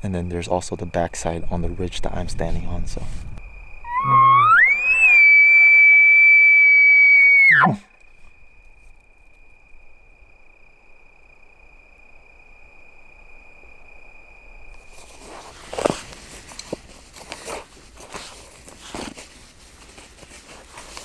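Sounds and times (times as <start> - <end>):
elk bugle call whistle: 3.8 - 7.9.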